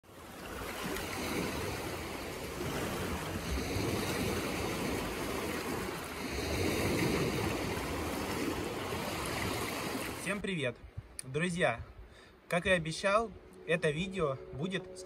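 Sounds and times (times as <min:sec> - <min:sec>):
waves washing over rocks: 0:00.1 - 0:10.4.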